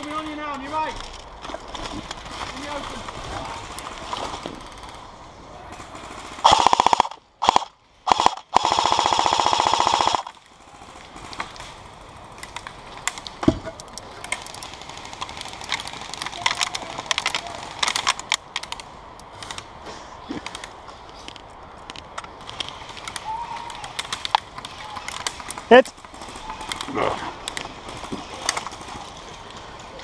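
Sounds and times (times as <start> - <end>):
airsoft gun firing bursts: 5.8 - 11.3.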